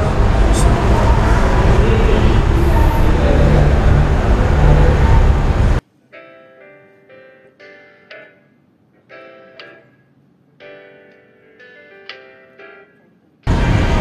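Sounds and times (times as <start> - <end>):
loud rushing noise with hum: 0.0 - 5.8, 13.5 - 14.0
soft ringing keyboard music: 0.0 - 14.0.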